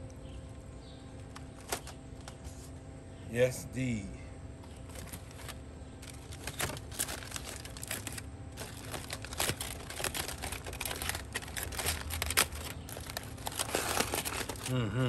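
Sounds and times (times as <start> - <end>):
aluminium foil crinkling: 1.2 - 2.7, 4.7 - 15.0.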